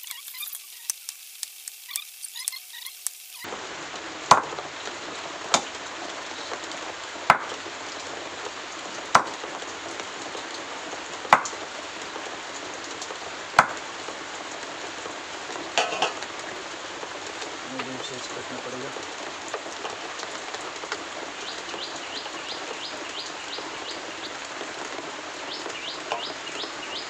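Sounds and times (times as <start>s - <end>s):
steady hiss: 0.0s - 27.0s
chopper chopping onto wooden board: 4.3s - 4.6s, 7.3s - 7.6s, 9.2s - 9.4s, 13.6s - 13.8s.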